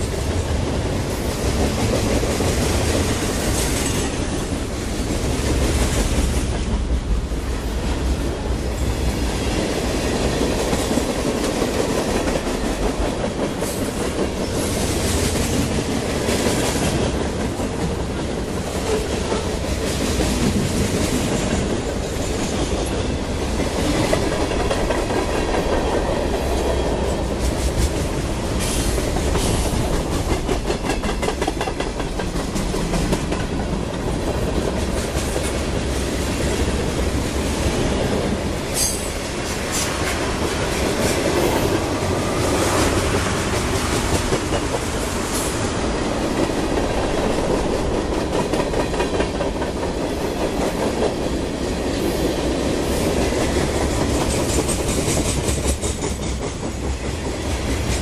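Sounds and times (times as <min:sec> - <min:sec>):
freight train rumbling past: 0:00.0 - 0:58.0
wheels clacking over rail joints: 0:10.3 - 0:35.8.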